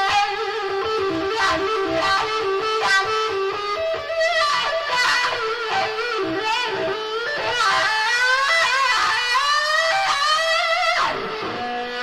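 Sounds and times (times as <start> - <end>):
electric guitar solo: 0.0 - 12.0.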